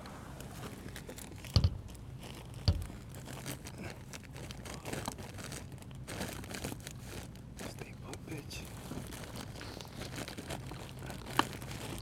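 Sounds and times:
plastic wrap rustling and crinkling: 0.3s - 12.0s
dull thumps: 1.4s - 3.3s.

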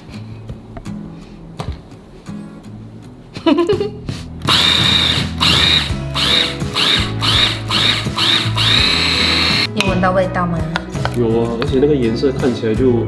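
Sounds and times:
electric chopper motor whining: 4.5s - 9.7s.

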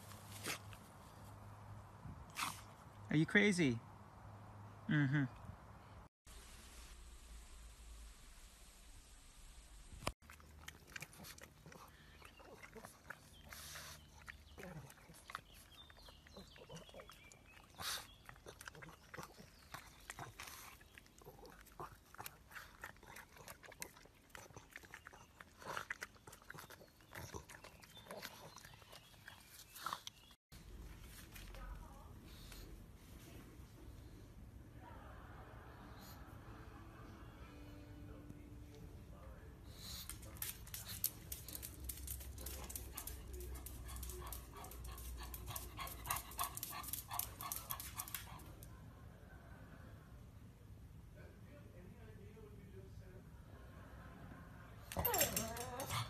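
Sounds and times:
dog sniffing and snuffling: 0.0s - 1.4s, 2.3s - 2.8s, 10.3s - 34.3s, 39.6s - 48.6s
dog chewing grass clicks: 39.8s - 48.5s.

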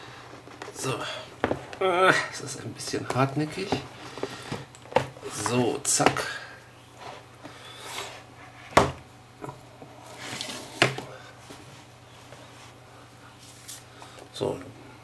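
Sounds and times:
cardboard sliding and rustling: 10.1s - 11.7s.

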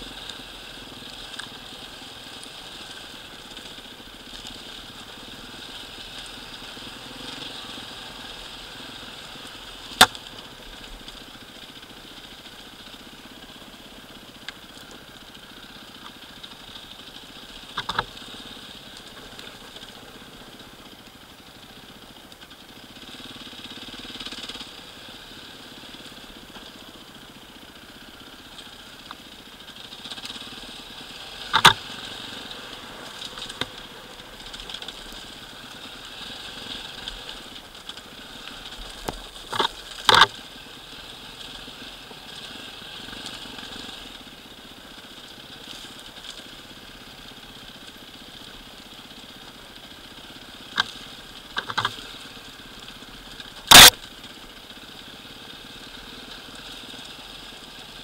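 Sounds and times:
dirt bike engine running: 0.0s - 58.0s
bike knocking over stones: 38.8s - 40.4s, 53.5s - 54.0s.

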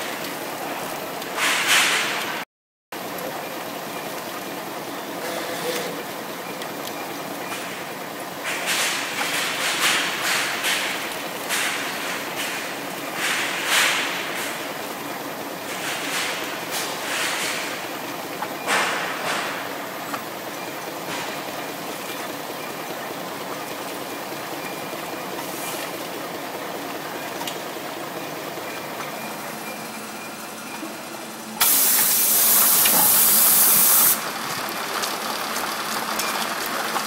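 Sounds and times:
loud hiss: 31.6s - 34.2s.

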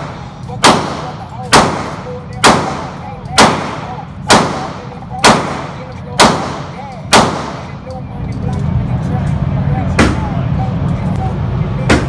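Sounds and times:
handgun shots echoing indoors: 0.0s - 7.9s.

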